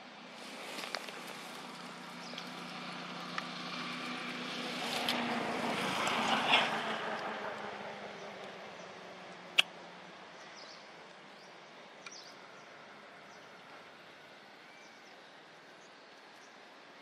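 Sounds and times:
faint bird chirps: 0:14.5 - 0:17.0.

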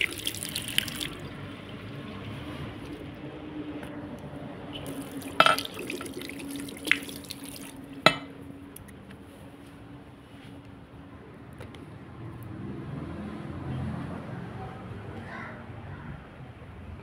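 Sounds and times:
tap water running into basin: 0:00.0 - 0:03.4, 0:04.8 - 0:08.3.

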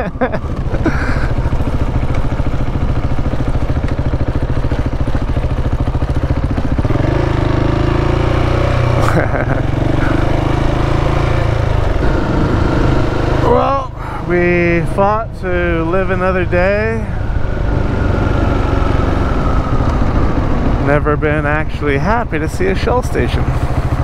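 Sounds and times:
motorcycle engine running: 0:00.0 - 0:24.0
wind noise: 0:17.2 - 0:22.3.

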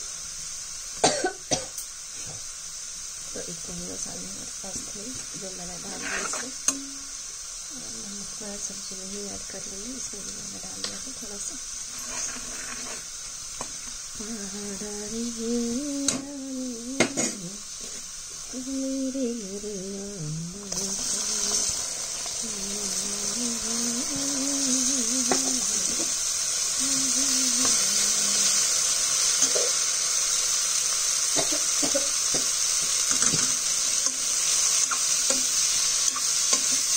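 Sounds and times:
oil sizzling in a pan: 0:00.0 - 0:36.9
person humming a tune: 0:14.2 - 0:17.7, 0:18.5 - 0:21.8, 0:22.4 - 0:29.6.

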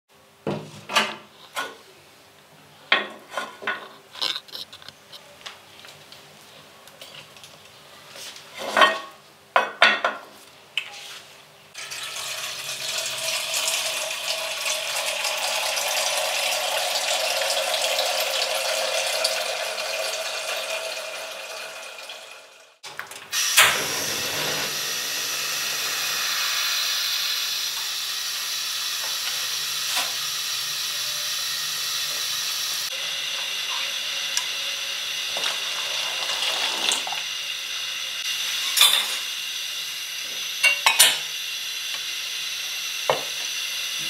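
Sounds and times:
milk pouring: 0:11.8 - 0:22.6, 0:35.3 - 0:37.3
crockery and cutlery clinking: 0:40.6 - 0:41.2.

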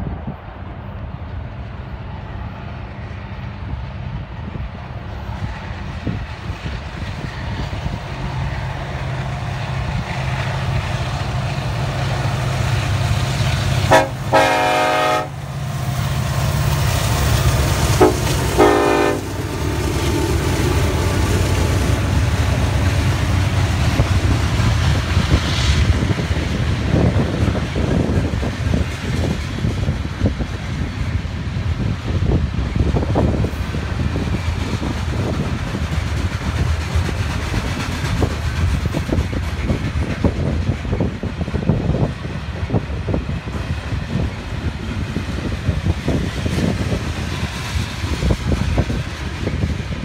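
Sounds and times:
freight cars rolling on rails: 0:00.0 - 0:50.0
locomotive engines rumbling: 0:00.0 - 0:50.0
train air horn blasts: 0:13.8 - 0:15.5, 0:18.0 - 0:19.4.

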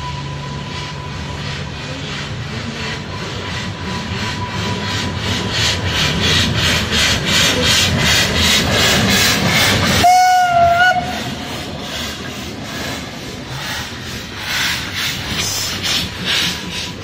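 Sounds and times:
steam locomotive chuffing: 0:00.0 - 0:17.0
short steam whistle blast: 0:10.0 - 0:11.3.

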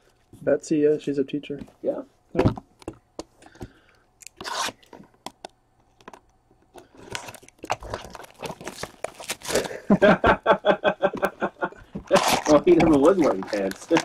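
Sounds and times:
card pack wrapper crinkling: 0:07.0 - 0:09.9, 0:12.1 - 0:14.0.

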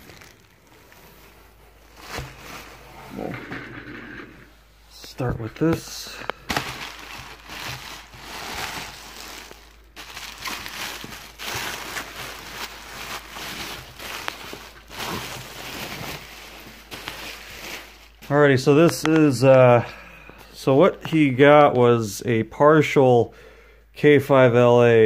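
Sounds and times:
bubble wrap and plastic bag crinkling: 0:00.0 - 0:03.4, 0:05.0 - 0:19.9.

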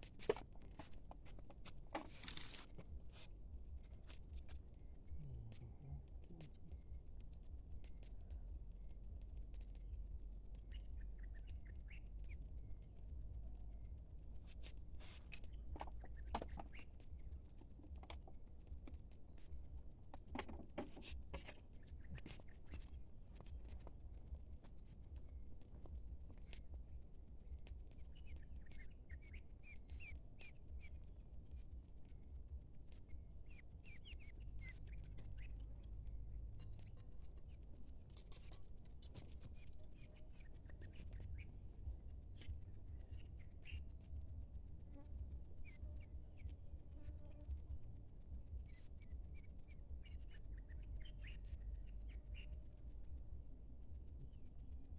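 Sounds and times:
clicks and rustles: 0:00.0 - 0:04.7, 0:14.6 - 0:26.7.

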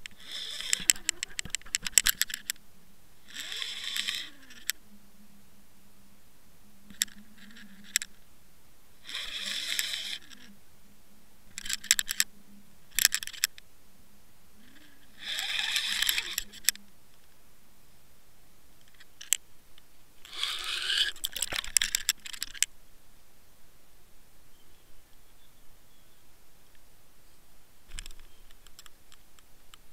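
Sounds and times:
sharp clicks: 0:00.0 - 0:02.6, 0:11.5 - 0:12.3, 0:12.9 - 0:13.7
faint low hum: 0:00.0 - 0:29.9
scraping bursts: 0:00.1 - 0:02.5, 0:03.3 - 0:04.7, 0:09.0 - 0:10.5, 0:14.6 - 0:16.8, 0:20.2 - 0:22.7.

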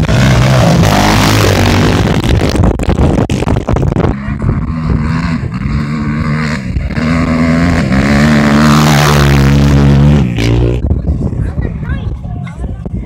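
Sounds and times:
engine revving hard passing by: 0:00.0 - 0:02.6, 0:04.0 - 0:10.8.

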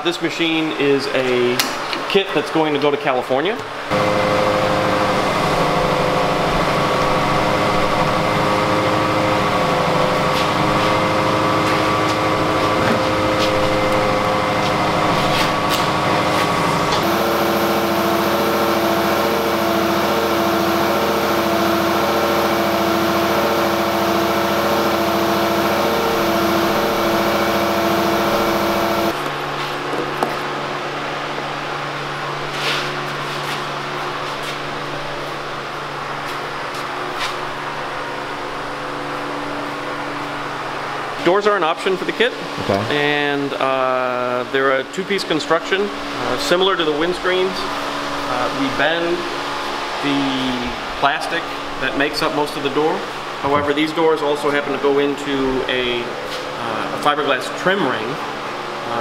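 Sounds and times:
machine hum: 0:03.7 - 0:59.0
steady tones: 0:03.9 - 0:29.4.

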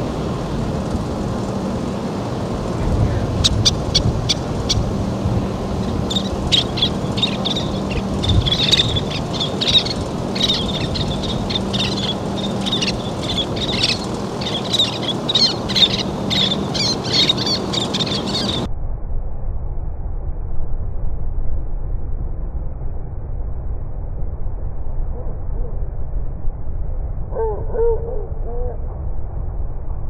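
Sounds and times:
low background rush: 0:00.0 - 0:19.0
terns chirping: 0:01.0 - 0:18.7.

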